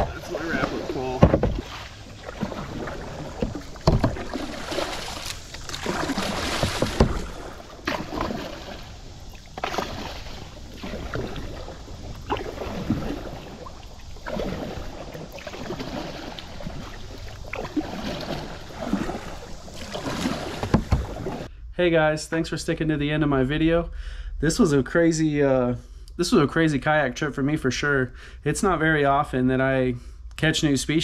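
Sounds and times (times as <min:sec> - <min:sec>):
kayak paddle splashing in water: 0:00.0 - 0:21.5.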